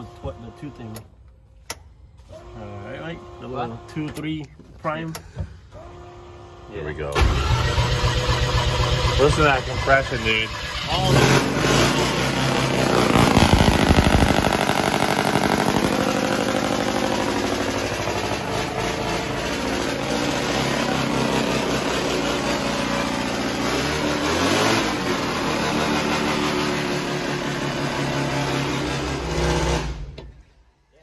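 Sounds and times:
van engine starting and idling: 0:05.0 - 0:30.9.

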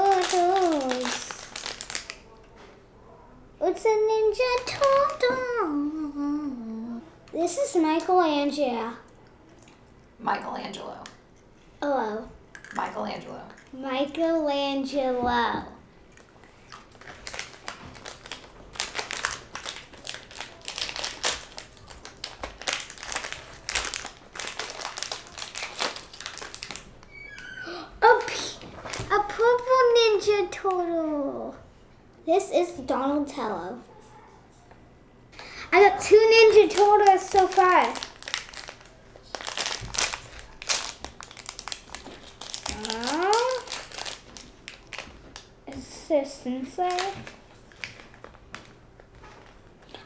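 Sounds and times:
plastic packet crinkling: 0:00.0 - 0:02.3, 0:04.2 - 0:05.6, 0:16.2 - 0:30.0, 0:35.8 - 0:45.9, 0:46.6 - 0:50.0.

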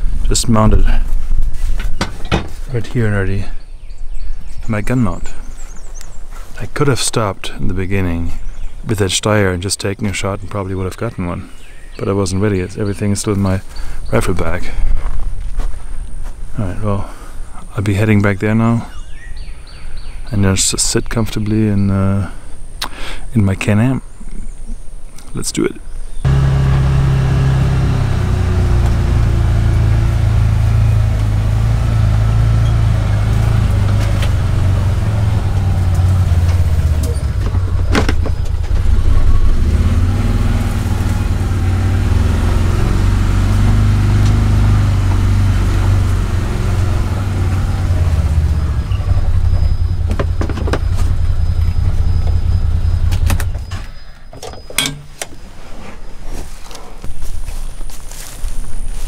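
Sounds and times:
engine running inside cab: 0:26.2 - 0:53.7
sharp clicks and knocks: 0:35.3 - 0:39.0, 0:49.5 - 0:52.4, 0:53.1 - 0:55.4.

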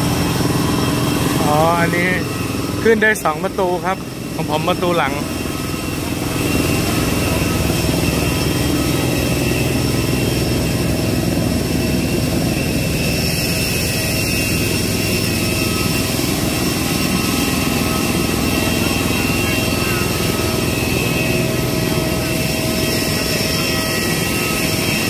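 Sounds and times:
jet turbines whining: 0:00.0 - 0:25.0.

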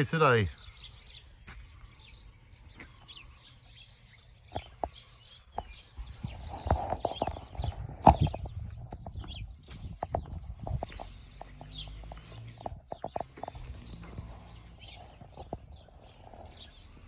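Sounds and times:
sparrows chirping: 0:00.0 - 0:17.0
clicks and knocks near microphone: 0:04.5 - 0:13.9.

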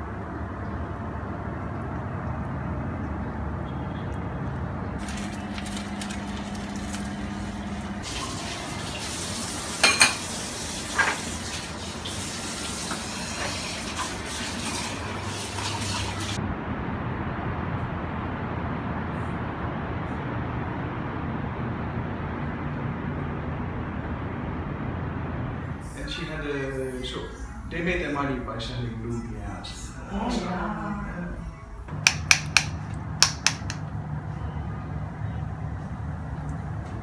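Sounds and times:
crockery clinking: 0:09.8 - 0:10.2
low background hum: 0:16.4 - 0:37.0.

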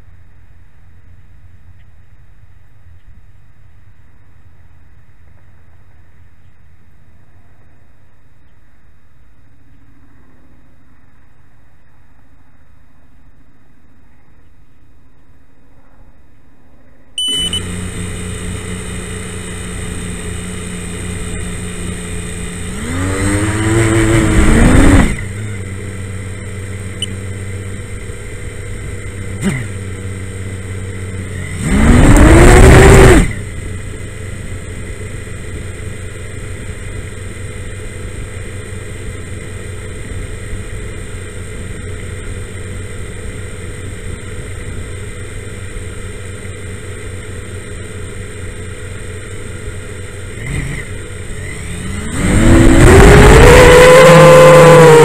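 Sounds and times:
quadcopter motors whining: 0:17.2 - 0:55.0.

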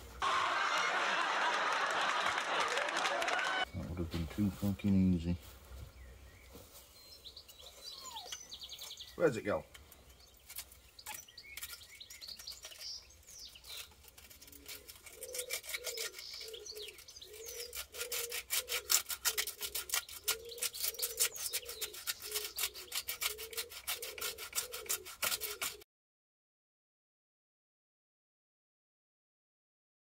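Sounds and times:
birds chirping faintly: 0:03.6 - 0:25.8
rasping scraping strokes: 0:09.8 - 0:25.8.

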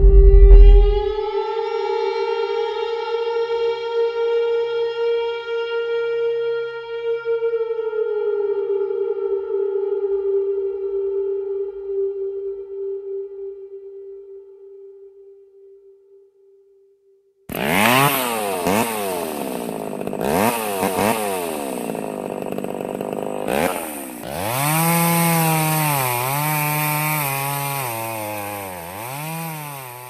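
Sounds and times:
chainsaw revving and cutting wood: 0:17.5 - 0:30.0.

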